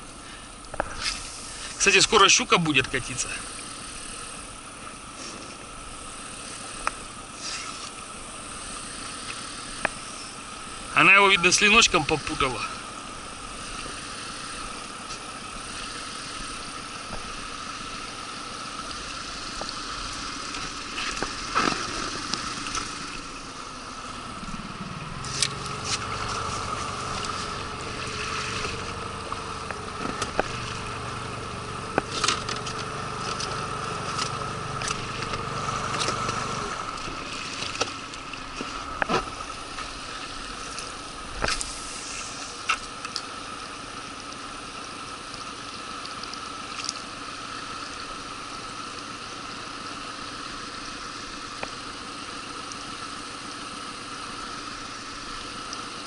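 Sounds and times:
small boat motor whining: 0:00.0 - 0:56.0
deeper hum: 0:08.3 - 0:42.6.

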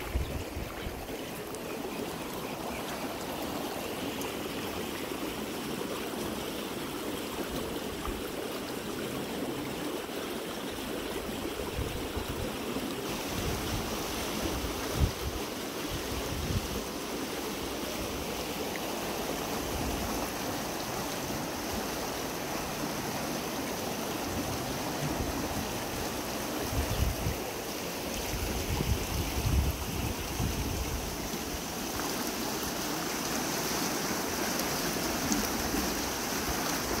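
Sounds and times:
wind rumble on microphone: 0:00.0 - 0:01.1, 0:13.3 - 0:16.8, 0:26.6 - 0:27.4, 0:28.3 - 0:31.3
stream water rushing: 0:00.0 - 0:37.0.

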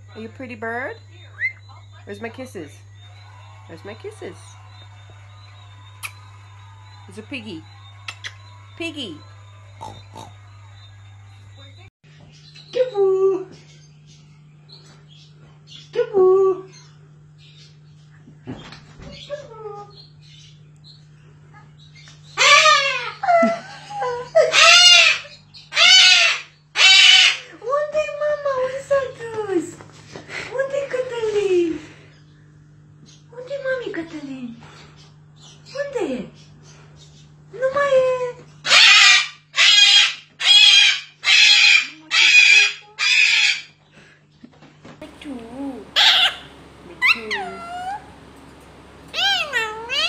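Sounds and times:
cockatoo screeching: 0:22.4 - 0:23.2, 0:24.4 - 0:27.5, 0:38.6 - 0:43.7, 0:45.6 - 0:48.3, 0:49.1 - 0:50.0
cockatoo falling call: 0:45.0 - 0:50.0.

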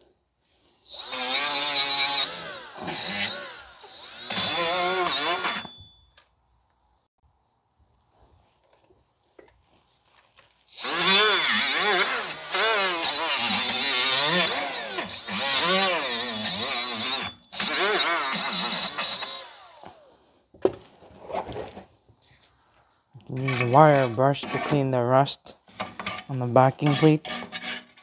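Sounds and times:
wire wheel scouring rust: 0:00.8 - 0:05.8, 0:10.7 - 0:20.1, 0:23.2 - 0:28.0.

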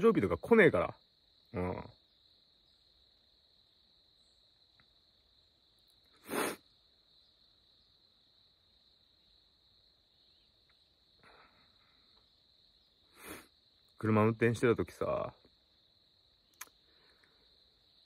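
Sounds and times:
high-pitched insect trill: 0:00.0 - 0:18.0
sharp intake of breath: 0:06.1 - 0:06.7, 0:13.1 - 0:13.5.

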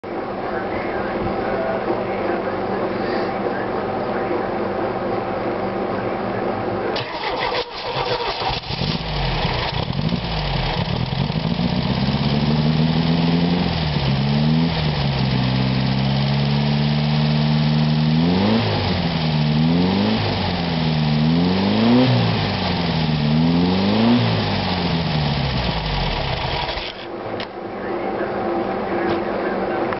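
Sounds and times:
engine cranking and starting: 0:07.0 - 0:11.4, 0:25.6 - 0:27.1
car engine idling: 0:07.0 - 0:27.1
engine revving: 0:07.0 - 0:27.1.

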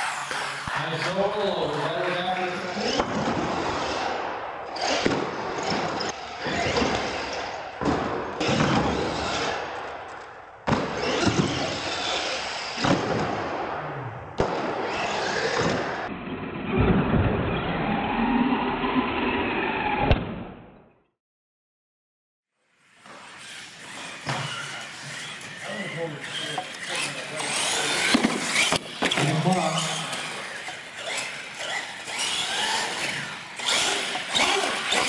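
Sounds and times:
toy truck motors whining: 0:00.0 - 0:01.2, 0:11.0 - 0:12.8, 0:14.8 - 0:16.0, 0:22.8 - 0:35.0
tyre noise on concrete: 0:23.0 - 0:25.5.

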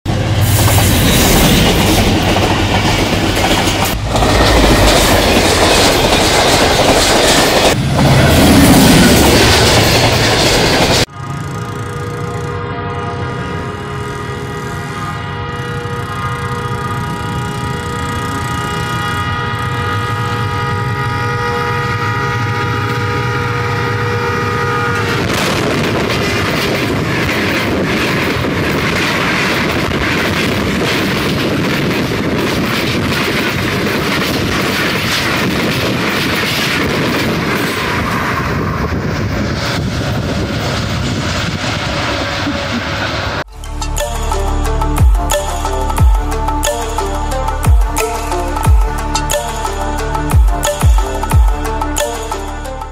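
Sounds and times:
train coaches rushing past: 0:00.1 - 0:20.8, 0:22.2 - 0:43.4
wheels clattering on rails: 0:00.6 - 0:12.6, 0:25.2 - 0:40.8
locomotive air horn: 0:11.6 - 0:26.4.

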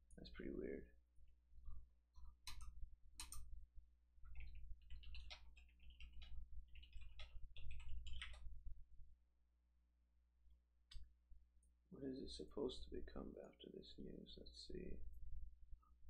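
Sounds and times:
low steady hum: 0:00.0 - 0:16.0
keyboard and mouse clicking: 0:02.2 - 0:03.5, 0:04.3 - 0:08.5.

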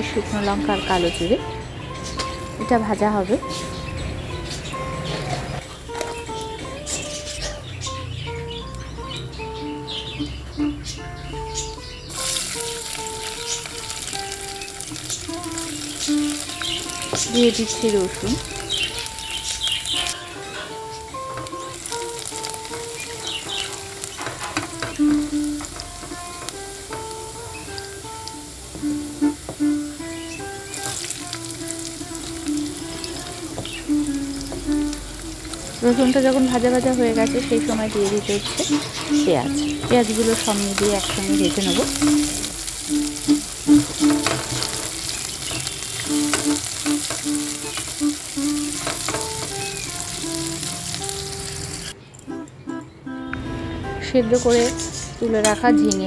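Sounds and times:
background music: 0:00.0 - 0:45.2, 0:46.1 - 0:56.0
garlic sizzling in hot oil: 0:00.0 - 0:52.0, 0:54.3 - 0:56.0
spatula scraping and tapping pan: 0:20.0 - 0:51.3.

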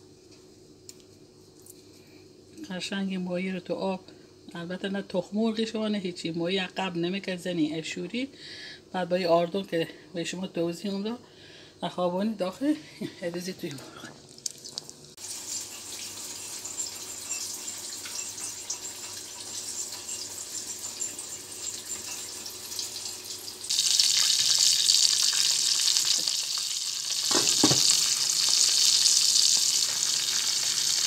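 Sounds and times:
fish frying in hot oil: 0:14.5 - 0:31.0.

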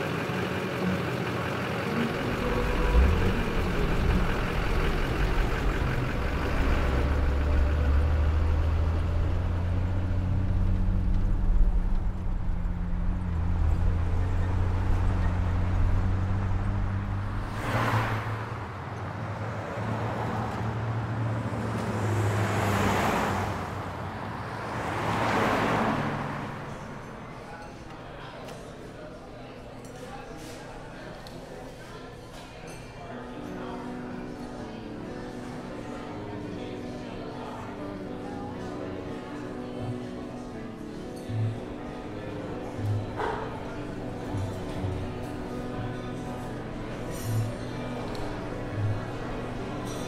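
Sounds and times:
large engine humming: 0:00.0 - 0:19.4
vehicles passing whoosh: 0:01.9 - 0:27.5.

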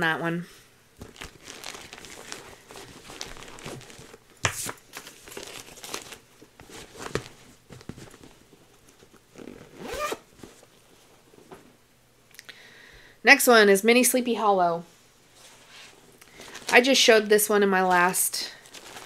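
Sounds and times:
fabric rustling and crinkling: 0:01.0 - 0:11.8, 0:15.2 - 0:19.0.

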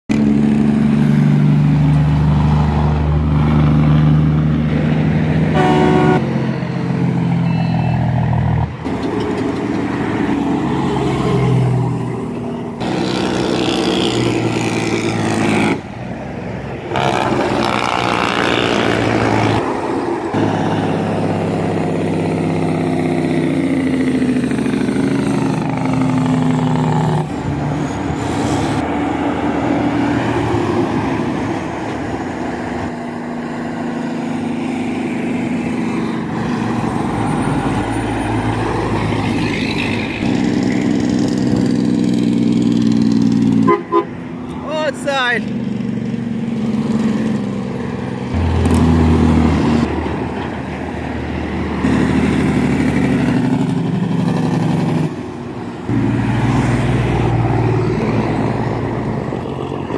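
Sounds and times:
diesel trucks passing: 0:00.1 - 0:59.9
truck horn toot: 0:05.5 - 0:06.3, 0:07.2 - 0:08.2, 0:16.9 - 0:17.9, 0:43.6 - 0:44.2.

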